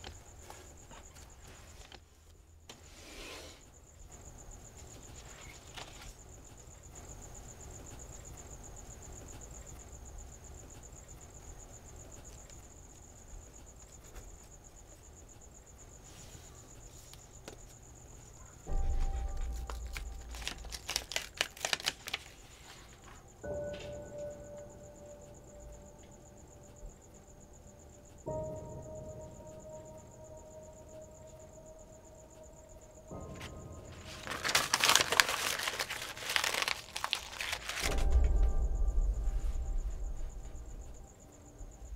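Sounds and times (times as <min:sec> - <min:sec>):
crickets chirping: 0:00.0 - 0:41.9
low hum: 0:18.3 - 0:22.2, 0:23.0 - 0:41.9.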